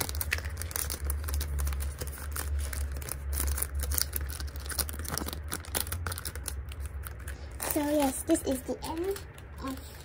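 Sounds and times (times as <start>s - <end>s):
plastic sleeve crinkling: 0.0s - 10.0s.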